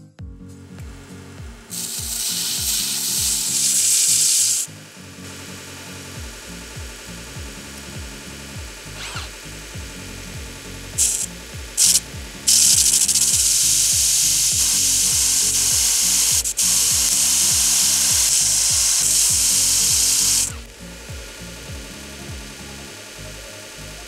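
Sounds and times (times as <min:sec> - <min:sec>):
background music with steady beat: 0:00.0 - 0:24.0
metal bit grinding on belt grinder: 0:01.7 - 0:09.7, 0:10.9 - 0:21.6.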